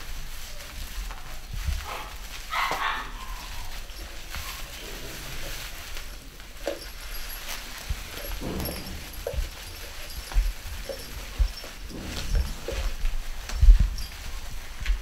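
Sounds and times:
puppies yipping: 1.8 - 6.0.

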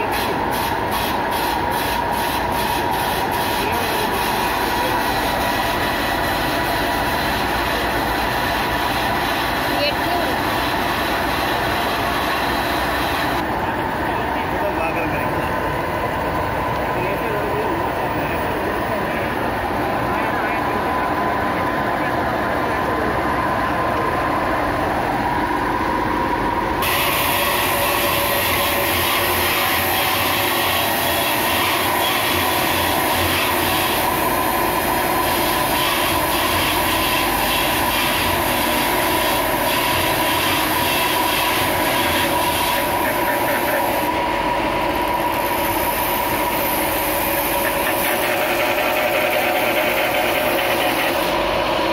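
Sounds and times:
electric motor whine: 26.8 - 51.9.

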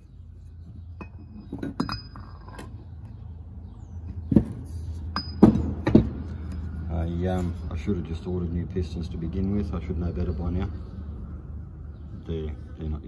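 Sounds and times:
metal parts clinking and knocking: 0.8 - 3.1, 5.1 - 6.6.

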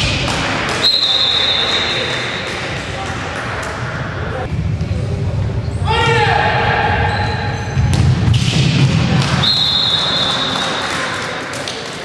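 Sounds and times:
voices of players and spectators: 0.0 - 12.0
referee's whistle blast: 0.8 - 2.2, 9.3 - 10.8.

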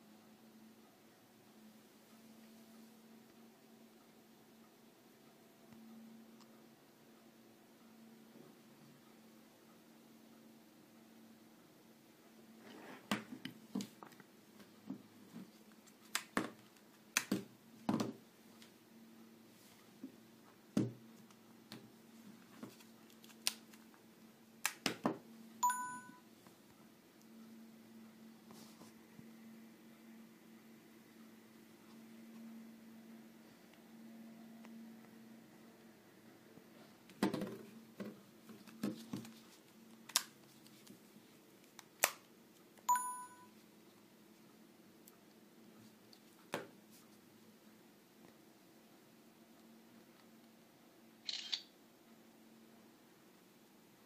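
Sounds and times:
short electronic beep: 25.6 - 26.2, 42.9 - 43.5.

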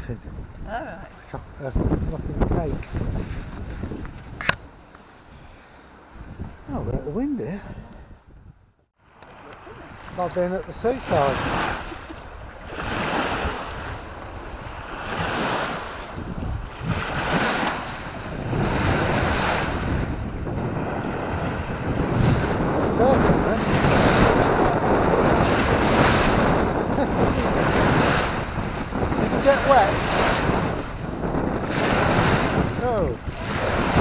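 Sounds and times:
wind buffeting microphone: 0.0 - 34.0
waves washing onto gravel shore: 9.2 - 16.2, 16.8 - 34.0.

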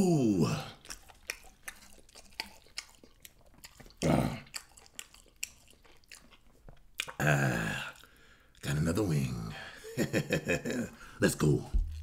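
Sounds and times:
man chewing with mouth clicks: 0.5 - 8.7, 11.8 - 12.0
man's voice: 11.2 - 12.0.

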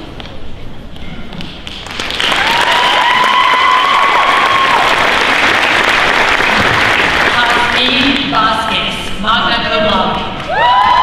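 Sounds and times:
audience applauding: 1.6 - 8.2.

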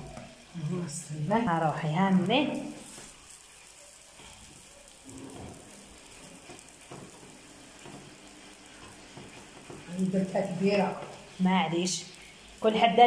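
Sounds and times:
dough sizzling in oil: 0.0 - 13.0.

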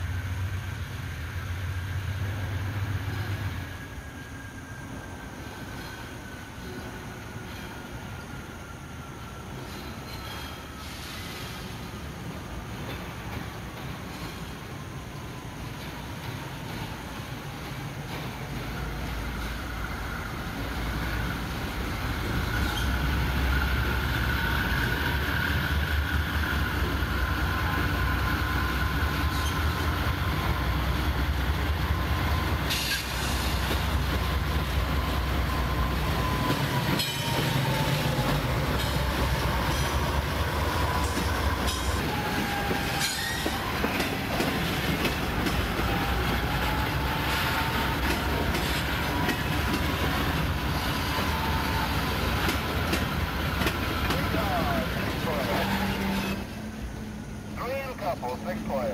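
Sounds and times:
train rumbling: 0.0 - 58.9
sharp clanks from train cars: 5.3 - 8.4, 9.4 - 26.0, 26.8 - 30.5, 32.4 - 57.0
wavering wheel squeal: 9.2 - 11.5, 22.2 - 30.2, 32.1 - 56.8.

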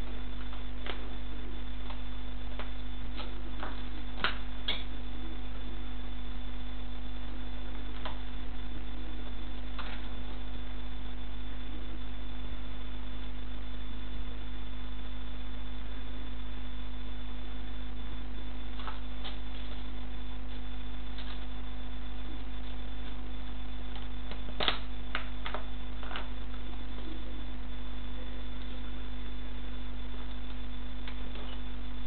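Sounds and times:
electrical hum: 0.0 - 32.0.

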